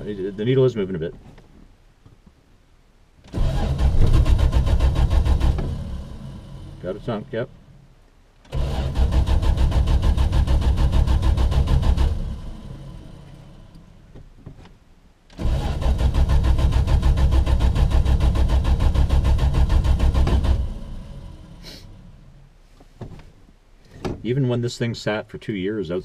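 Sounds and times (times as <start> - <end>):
starter cranking engine: 3.3 - 6.1, 8.4 - 12.8, 15.3 - 21.2.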